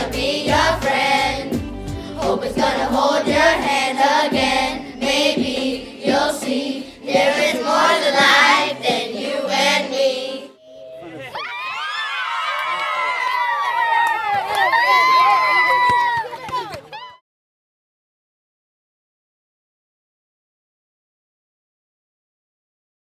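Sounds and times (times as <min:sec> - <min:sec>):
pop song beat: 0:00.0 - 0:09.6
children's choir singing: 0:00.0 - 0:11.2.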